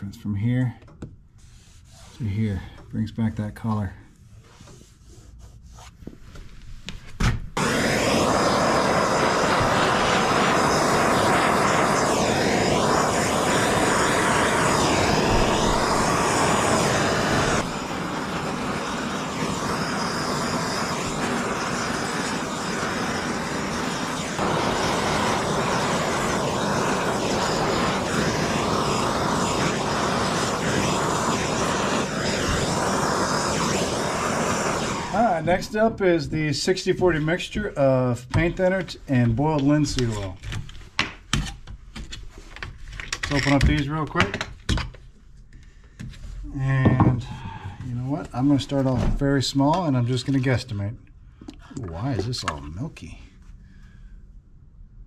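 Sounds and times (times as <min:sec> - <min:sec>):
gas torch hissing: 0:07.5 - 0:40.4, 0:46.4 - 0:50.7.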